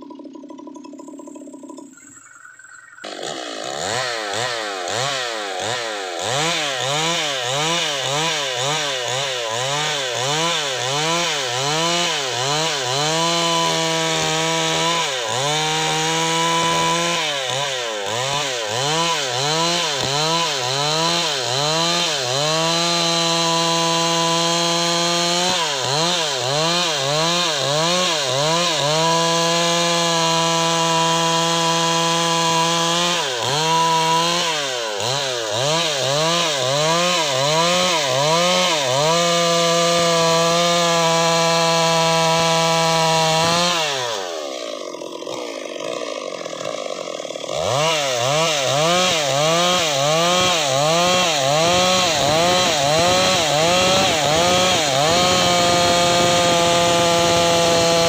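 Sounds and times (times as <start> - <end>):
chainsaw ripping a log: 3.0 - 58.0.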